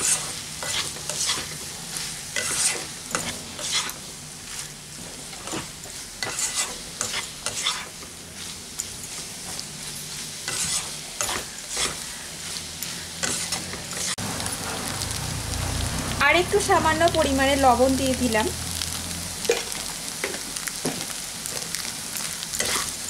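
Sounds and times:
spatula scraping a pan: 0.0s - 14.2s, 22.5s - 23.0s
frying sizzle: 0.0s - 23.0s.

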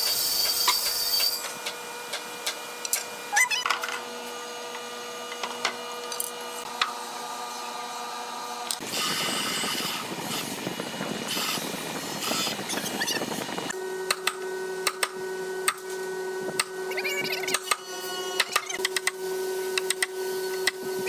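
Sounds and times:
steady hum: 1.4s - 21.0s
electric drill boring into wood: 8.8s - 13.6s.

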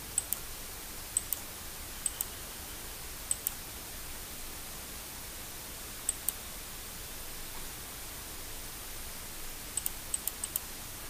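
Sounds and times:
steady hiss: 0.0s - 11.0s
computer mouse double-clicks: 0.2s - 0.4s, 1.2s - 2.3s, 3.3s - 3.6s, 6.1s - 6.4s, 9.8s - 10.7s.

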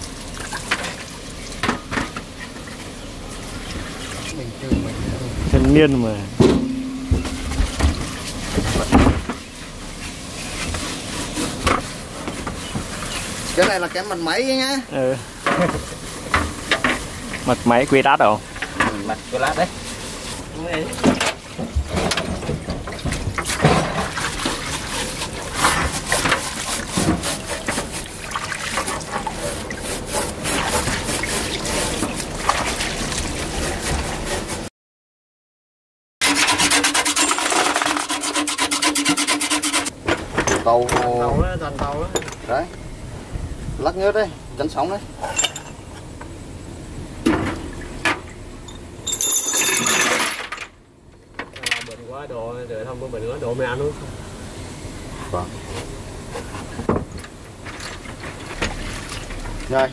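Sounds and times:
scrubbing and sloshing in liquid: 15.3s - 34.7s, 57.5s - 59.9s
metal parts clinking: 37.1s - 38.2s, 45.2s - 45.8s, 48.7s - 50.6s.

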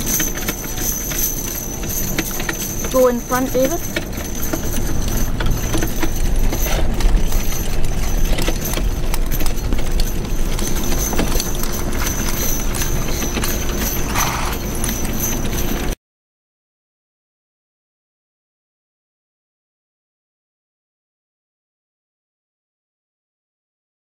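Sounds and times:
horse hoofbeats trotting: 0.0s - 16.0s
wagon and harness rattling: 0.0s - 16.0s.

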